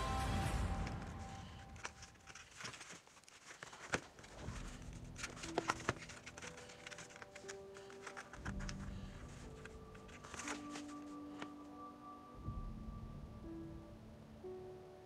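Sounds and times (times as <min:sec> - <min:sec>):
background music: 0:00.0 - 0:03.0, 0:03.6 - 0:15.0.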